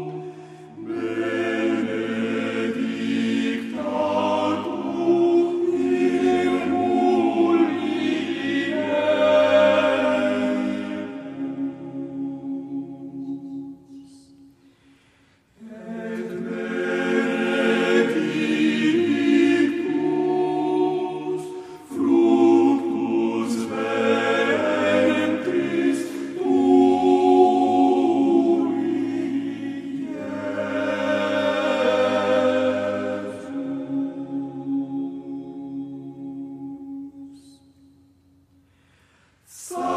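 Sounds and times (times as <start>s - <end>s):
choir singing sustained chords: 0.0s - 39.9s.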